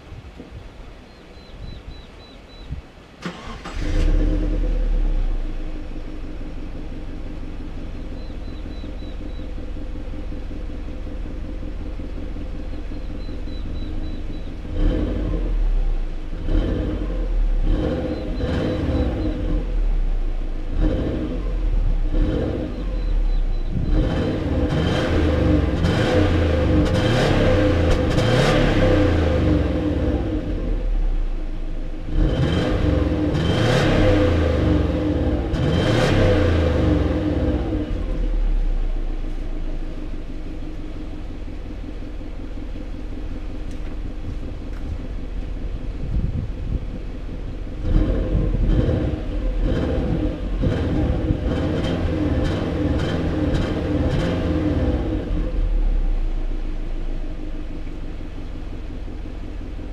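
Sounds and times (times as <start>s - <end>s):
car engine idling: 0.0s - 59.9s
car engine starting: 1.4s - 59.9s
car engine revving: 3.2s - 59.9s.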